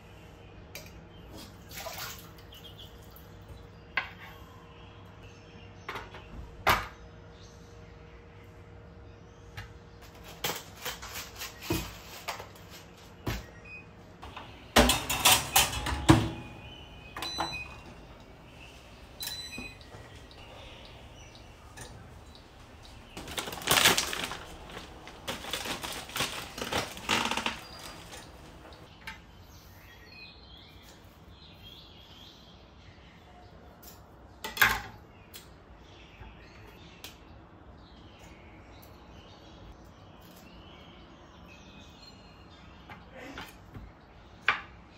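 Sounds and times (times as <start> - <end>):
dish and utensils clattering: 14.8 - 16.6
toaster oven being loaded: 14.8 - 16.6.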